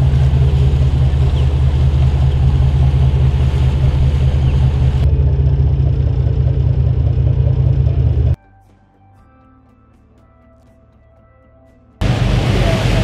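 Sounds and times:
boat engine rumble: 0.0 - 8.4, 12.0 - 13.0.

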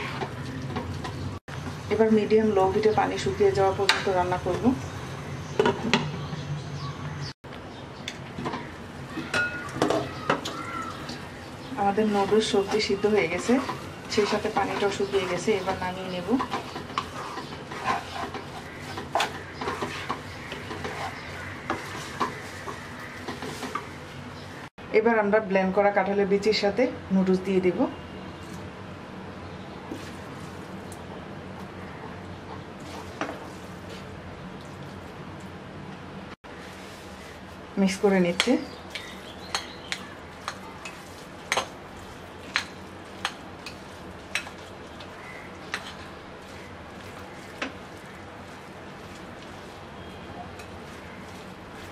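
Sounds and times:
wooden spatula scraping a wok: 0.0 - 1.8, 9.7 - 24.6, 32.5 - 34.1, 36.5 - 37.6, 40.4 - 51.9
spoon stirring noodles: 8.4 - 24.0, 38.4 - 51.9
faint sizzle: 36.5 - 51.9.

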